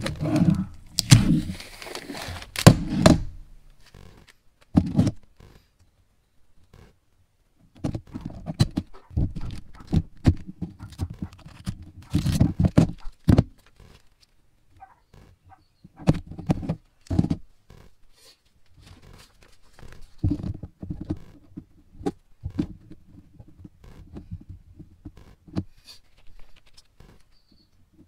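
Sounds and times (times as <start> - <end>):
vinyl wrap handling noises: 0.0 - 4.8, 8.0 - 15.3, 18.3 - 21.4, 26.0 - 27.4.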